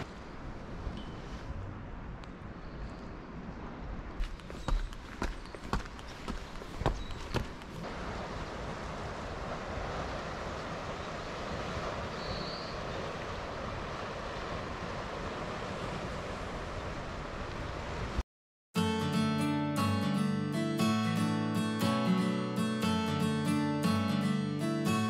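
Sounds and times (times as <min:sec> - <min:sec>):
sea waves on rocky shore: 0:07.6 - 0:18.2.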